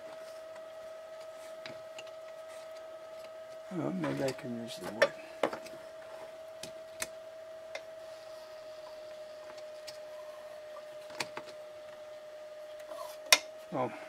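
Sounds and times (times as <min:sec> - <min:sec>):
faint hum: 0:00.0 - 0:14.0.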